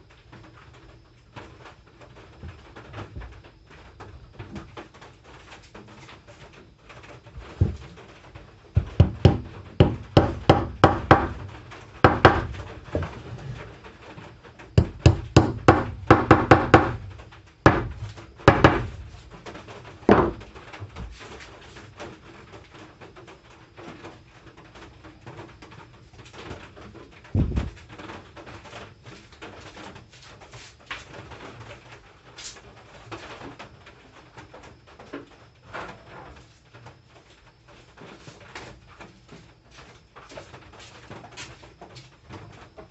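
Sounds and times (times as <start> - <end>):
hammer tapping wooden dowels: 8.8 - 13.2, 14.8 - 19.0, 20.1 - 20.5.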